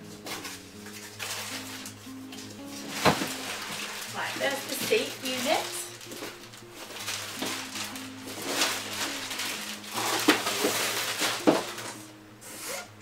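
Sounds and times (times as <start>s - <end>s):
plastic wrapping crinkling: 0.0s - 12.2s
background music with simple melody: 0.0s - 13.0s.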